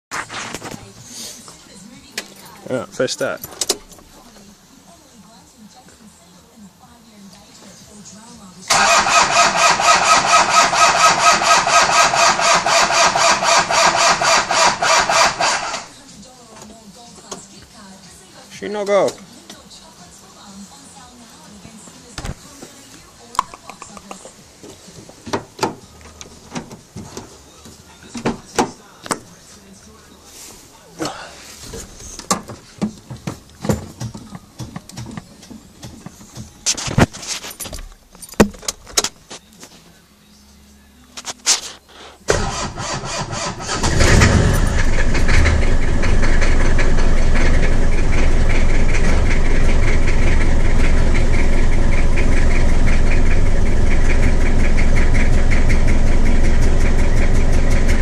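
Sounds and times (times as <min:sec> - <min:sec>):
starter motor cranking diesel engine: 0:08.7 - 0:15.9, 0:42.0 - 0:58.0.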